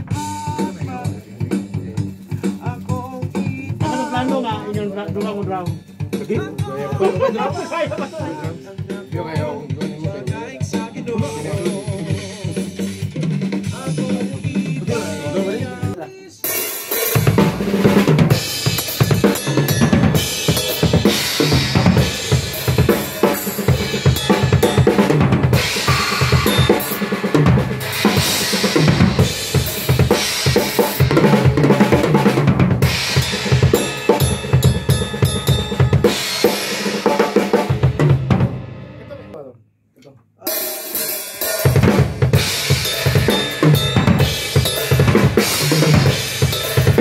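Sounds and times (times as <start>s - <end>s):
acoustic drum kit playing: 0.0s - 39.4s, 40.4s - 47.0s.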